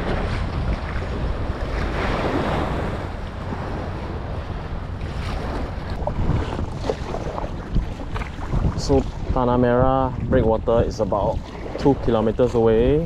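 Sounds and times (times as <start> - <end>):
small waves washing on shore: 0.0 - 13.0
wind buffeting microphone: 0.0 - 13.0.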